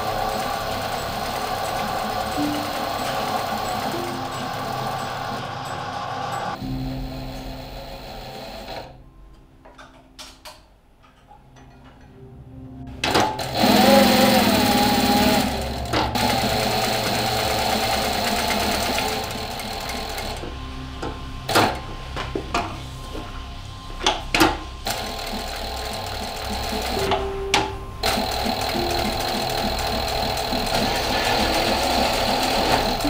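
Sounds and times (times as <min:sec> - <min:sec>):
sewing machine stitching rattle: 0:00.0 - 0:05.4, 0:13.1 - 0:20.4, 0:24.9 - 0:27.2, 0:28.0 - 0:33.0
sewing machine clicks: 0:28.0 - 0:33.0.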